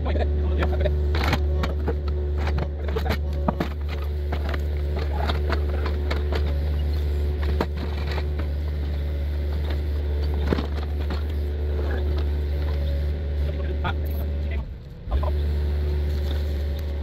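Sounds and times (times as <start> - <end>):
excavator engine running: 0.0 - 17.0.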